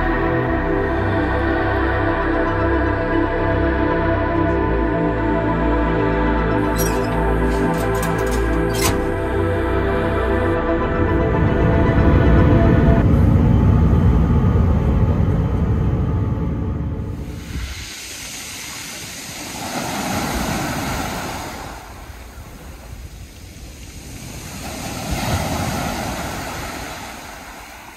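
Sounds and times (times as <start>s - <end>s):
jet airliner cabin rumble: 6.6s - 10.6s
waves breaking on pebble beach: 17.2s - 27.9s.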